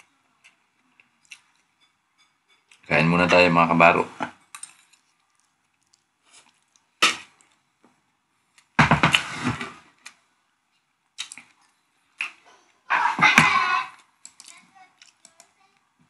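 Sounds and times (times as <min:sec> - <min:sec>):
utensils clinking on plate: 0:01.4 - 0:03.5.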